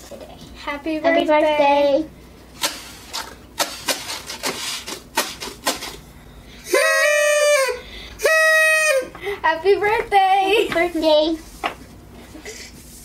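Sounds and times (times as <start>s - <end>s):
party blower puffs: 2.6s - 9.4s
party blower buzzing toot: 6.6s - 9.2s.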